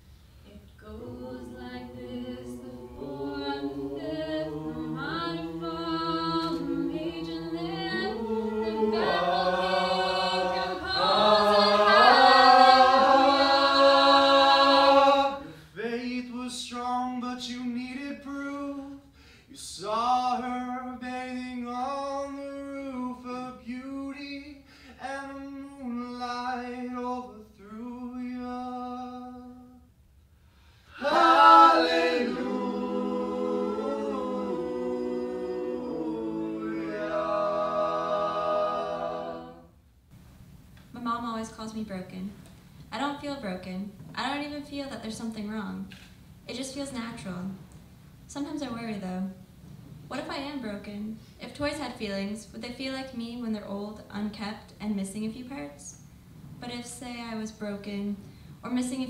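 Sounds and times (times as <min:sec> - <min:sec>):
choir singing a cappella: 0:00.5 - 0:16.4, 0:30.9 - 0:39.8.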